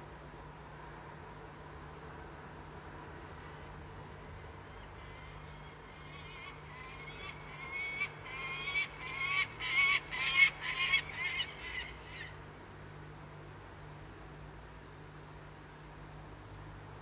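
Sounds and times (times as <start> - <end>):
falcon warning call: 4.4 - 12.4.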